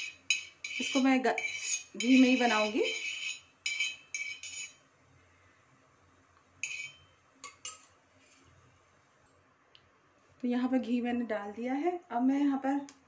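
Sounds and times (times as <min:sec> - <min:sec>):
steel spoon scraping iron pan: 0:00.0 - 0:04.8, 0:06.6 - 0:07.9.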